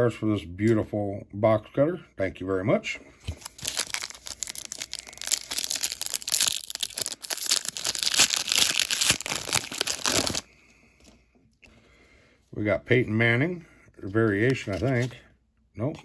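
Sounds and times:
plastic wrapper crinkling and tearing: 0:03.3 - 0:10.5.

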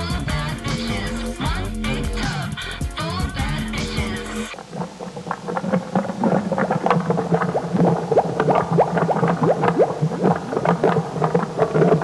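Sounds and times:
low steady hum: 0:00.0 - 0:12.0
water bubbling: 0:04.5 - 0:12.0.

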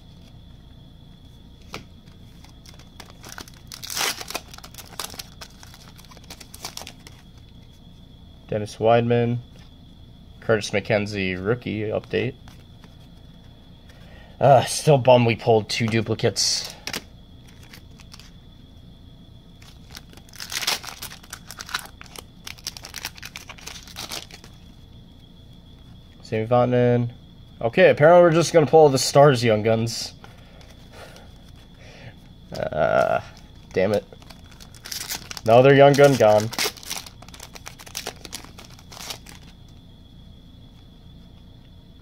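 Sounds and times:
card pack wrapper crinkling: 0:01.6 - 0:07.4, 0:16.8 - 0:18.3, 0:19.6 - 0:24.6, 0:32.5 - 0:39.5
cards clicking and rustling: 0:01.6 - 0:07.4, 0:12.4 - 0:14.0, 0:15.8 - 0:18.3, 0:19.6 - 0:24.6, 0:32.5 - 0:39.5
wrapper being torn open: 0:02.6 - 0:07.2, 0:19.6 - 0:24.5, 0:34.2 - 0:39.5.

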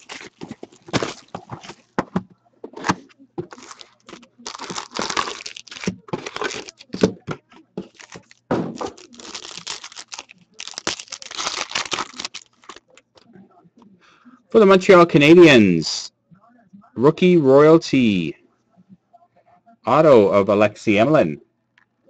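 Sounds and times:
plastic shrink wrap crinkling: 0:00.0 - 0:02.0, 0:02.8 - 0:13.2
foil packs rustling: 0:00.0 - 0:02.2, 0:02.8 - 0:13.0.

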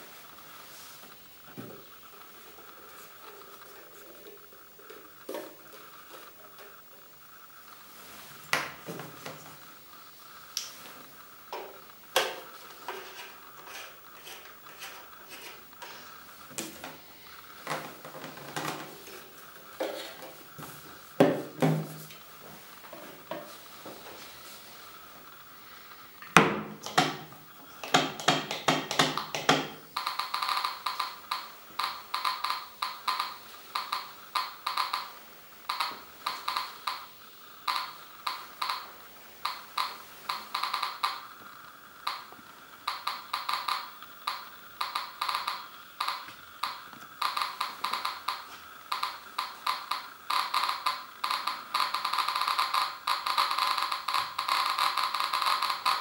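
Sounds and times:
geiger counter clicking: 0:26.8 - 0:56.0.

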